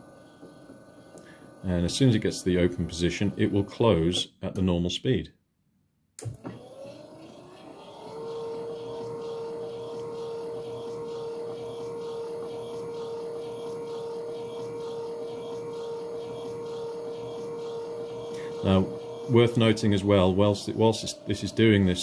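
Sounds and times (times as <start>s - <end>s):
gate opener motor whine: 0.0s - 4.2s, 6.2s - 22.0s
motor click: 6.2s - 19.9s.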